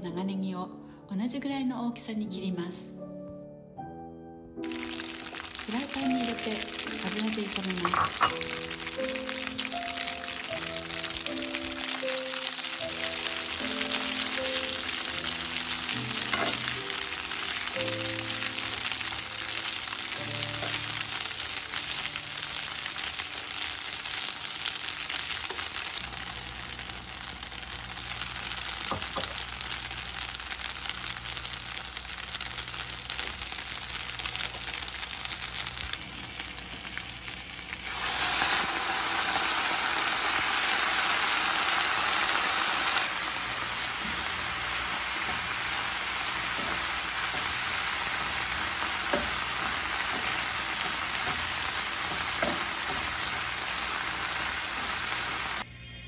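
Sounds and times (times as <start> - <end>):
tofu and leek sizzling in oil: 4.6 - 55.6.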